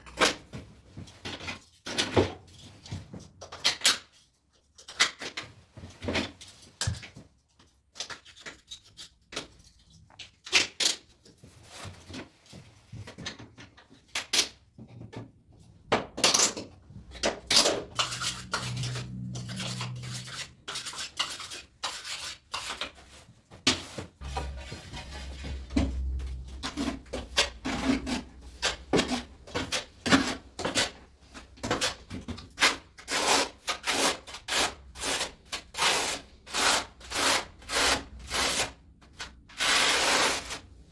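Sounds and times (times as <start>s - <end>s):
trowel rasping adhesive: 17.6s - 22.9s, 32.6s - 38.8s, 39.5s - 40.6s.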